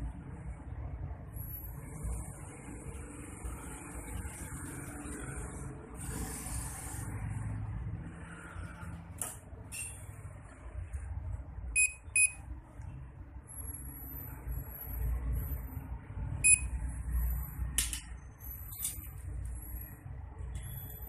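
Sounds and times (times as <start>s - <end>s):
short electronic beeps: 11.8s - 12.4s, 16.4s - 16.8s.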